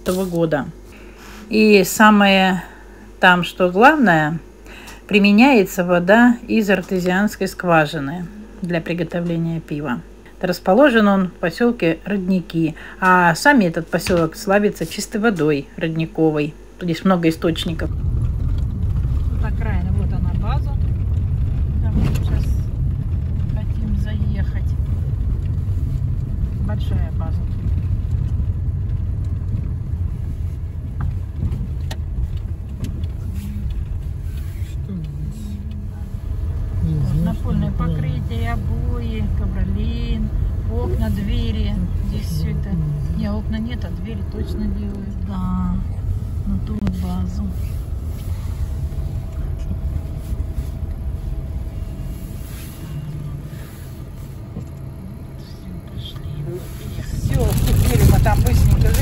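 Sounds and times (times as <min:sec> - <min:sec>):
car engine and tyres rumbling: 0:16.6 - 0:59.0.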